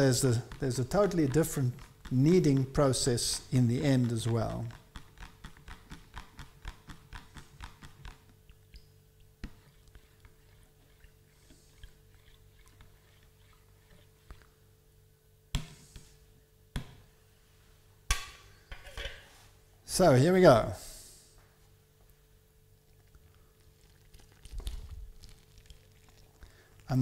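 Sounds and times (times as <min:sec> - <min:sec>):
spoon stirring in plastic jug: 0:00.0 - 0:14.6, 0:22.9 - 0:26.9.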